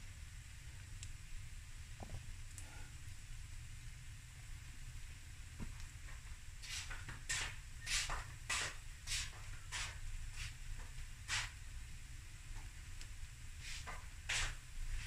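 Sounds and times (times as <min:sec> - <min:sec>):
low steady hum: 0:00.0 - 0:06.7
fat spitting in a pan: 0:06.6 - 0:10.6, 0:11.3 - 0:11.6, 0:13.6 - 0:14.6.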